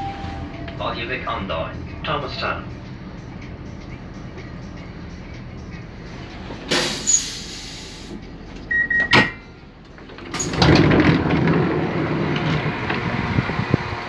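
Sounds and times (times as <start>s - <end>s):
train rumble: 0.0s - 14.0s
sliding door opening: 6.2s - 13.8s
short beep: 8.7s - 9.6s.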